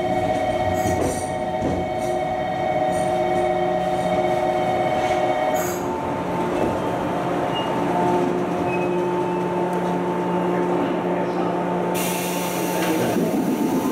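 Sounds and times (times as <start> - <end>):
electric train hum: 0.0 - 13.9
air hiss: 12.0 - 13.9.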